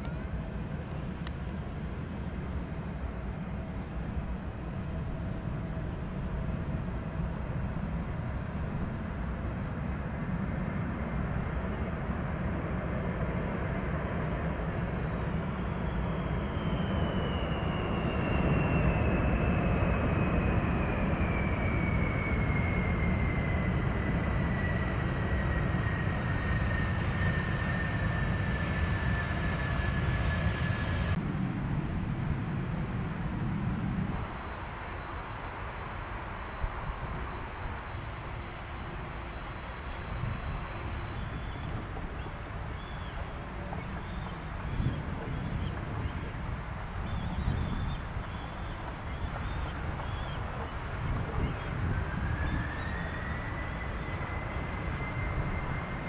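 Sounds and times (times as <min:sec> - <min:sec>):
jet engine rumble: 0:00.0 - 0:56.0
turbine whine falling in pitch: 0:14.5 - 0:31.2, 0:33.7 - 0:56.0.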